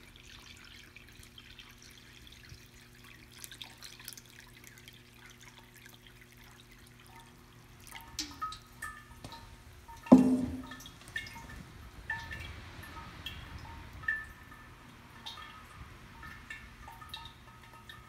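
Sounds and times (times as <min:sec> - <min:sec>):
water trickling and dripping: 0:00.0 - 0:18.0
drops ringing inside ceramic pot: 0:10.0 - 0:10.9.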